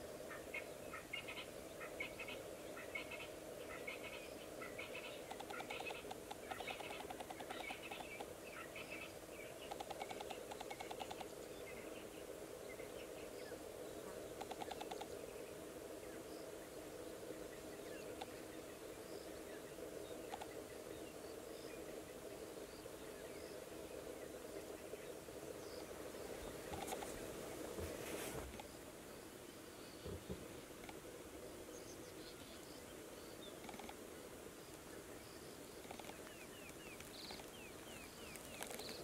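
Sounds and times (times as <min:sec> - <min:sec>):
insects droning: 0:00.0 - 0:39.0
bird chirps: 0:00.9 - 0:11.3
short rapid insect trills: 0:01.1 - 0:39.0.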